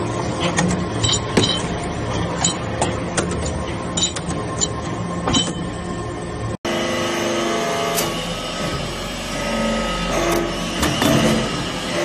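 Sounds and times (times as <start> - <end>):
hydraulic press droning: 6.7 - 12.0.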